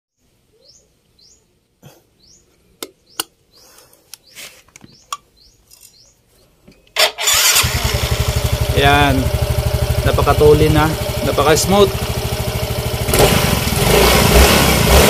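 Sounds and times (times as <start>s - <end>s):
bird chirping: 0.1s - 7.0s.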